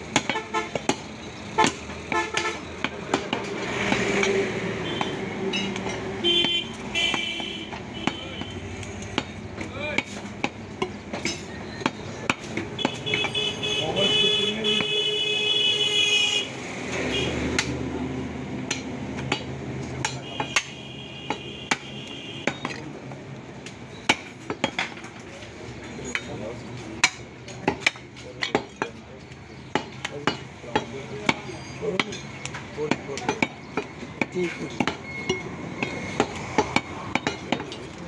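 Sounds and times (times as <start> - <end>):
cleaver chopping on wooden block: 0.1 - 13.4, 17.5 - 17.8, 18.6 - 22.8, 23.7 - 25.1, 27.0 - 29.0, 29.6 - 38.0.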